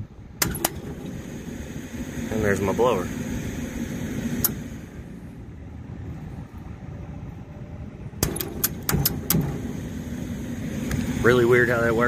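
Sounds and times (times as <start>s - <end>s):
blower running: 0.4s - 6.4s, 8.2s - 12.0s
sharp clicks: 8.2s - 9.5s.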